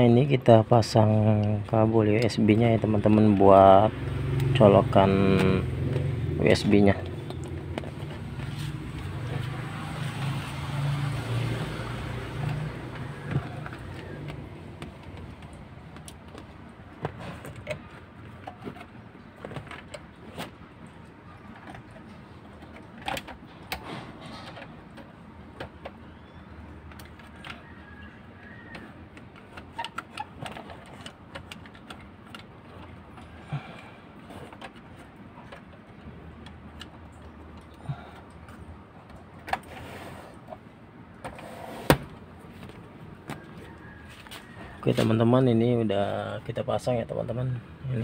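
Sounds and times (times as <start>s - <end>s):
vehicle engine hum: 0.1s - 48.0s
plastic parts clicking and rustling: 11.4s - 20.9s, 21.5s - 26.2s, 28.8s - 33.4s.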